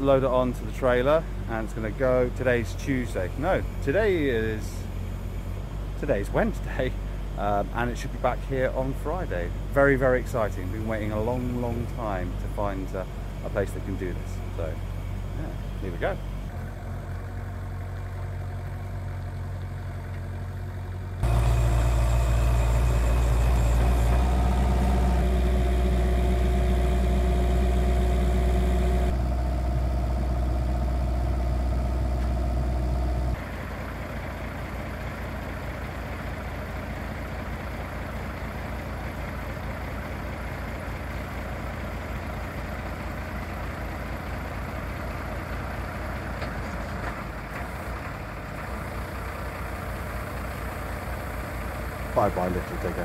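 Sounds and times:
diesel engines running: 0:00.0 - 0:53.0
steady whine: 0:21.2 - 0:33.4.

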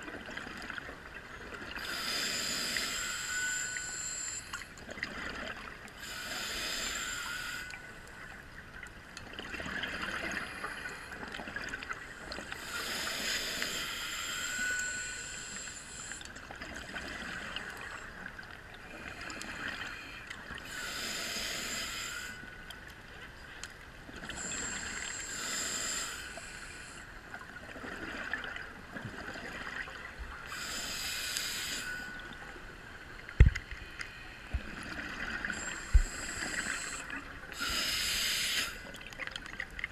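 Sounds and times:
diver breathing through regulator: 0:01.8 - 0:04.6, 0:06.0 - 0:08.0, 0:12.2 - 0:16.3, 0:19.0 - 0:22.5, 0:24.3 - 0:27.1, 0:30.4 - 0:32.5, 0:33.6 - 0:39.0.

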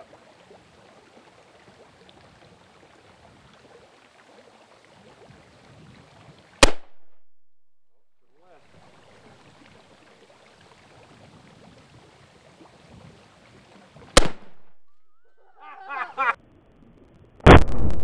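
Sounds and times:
rifle shot: 0:06.6 - 0:07.0, 0:14.2 - 0:14.7, 0:17.5 - 0:18.0.

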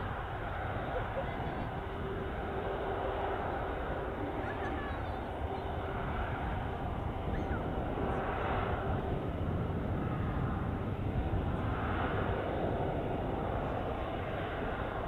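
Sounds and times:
jet airliner rumble: 0:00.0 - 0:15.0.

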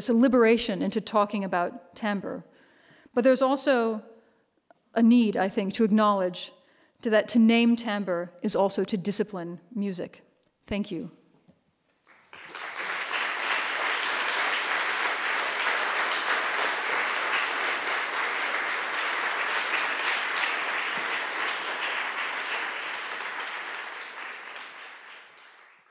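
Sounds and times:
audience applauding: 0:12.0 - 0:25.9.

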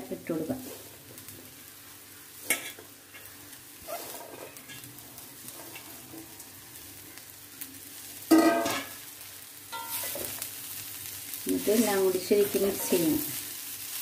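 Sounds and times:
faint sizzle: 0:00.0 - 0:14.0
leaves dropped into metal pan: 0:08.3 - 0:09.0.

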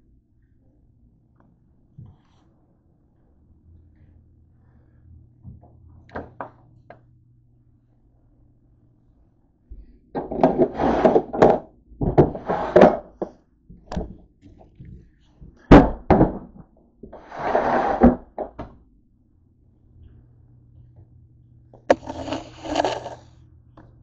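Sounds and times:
camera handling rubbing: 0:21.9 - 0:23.3.

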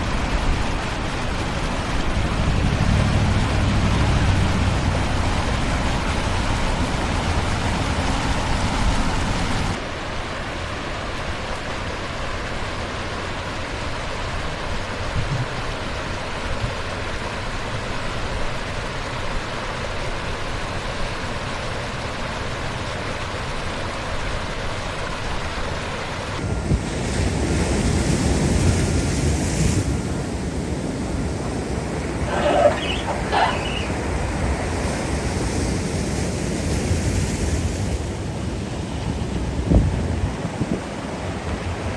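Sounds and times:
wind rumbling on microphone: 0:00.0 - 0:09.8, 0:15.0 - 0:15.6, 0:26.4 - 0:41.9
ocean surf: 0:00.0 - 0:19.9, 0:25.2 - 0:41.9
floodwater rushing: 0:00.0 - 0:41.9.

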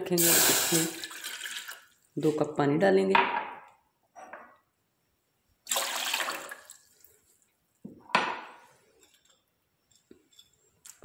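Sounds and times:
water pouring into saucepan: 0:00.2 - 0:02.0, 0:05.7 - 0:07.2.

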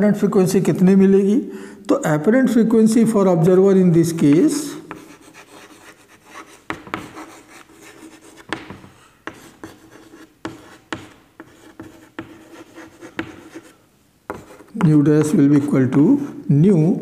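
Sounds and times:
chalk tapping on blackboard: 0:04.2 - 0:15.7
chalk scratching on blackboard: 0:04.3 - 0:16.4.

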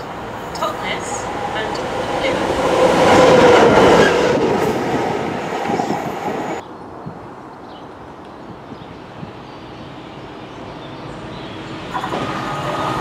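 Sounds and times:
diesel locomotive passing: 0:00.0 - 0:06.6, 0:09.6 - 0:13.0.

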